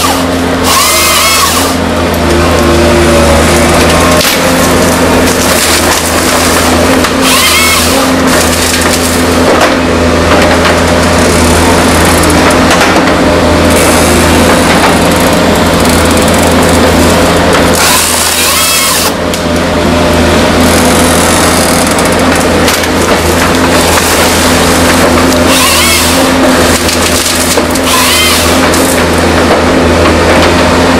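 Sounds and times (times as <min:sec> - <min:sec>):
saw cutting with rising whine: 0:00.0 - 0:09.2, 0:13.4 - 0:19.4, 0:20.0 - 0:29.3
diesel engine running under load: 0:00.0 - 0:30.9
wood cracking and splintering: 0:00.0 - 0:30.9.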